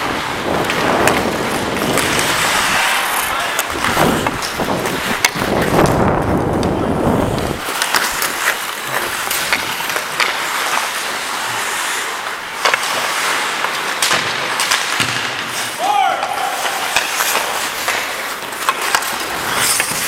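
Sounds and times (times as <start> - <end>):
skate blades scraping ice: 0.0 - 20.0
wind rumble on microphone: 3.8 - 7.6.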